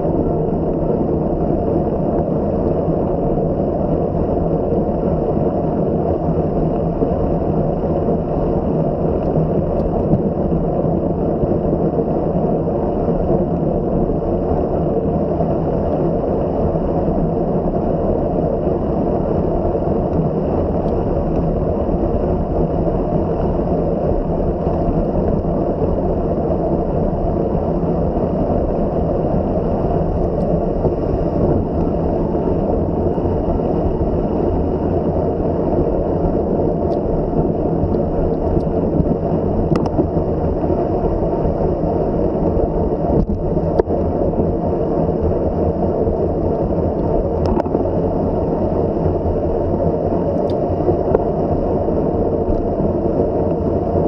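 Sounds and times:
bicycle rolling noise: 0.0 - 54.0
wind rushing on microphone: 0.0 - 54.0.

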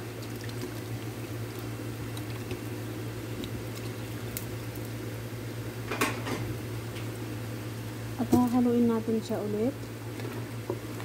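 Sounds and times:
pot bubbling and popping: 0.0 - 8.5
steady low hum: 0.0 - 11.0.

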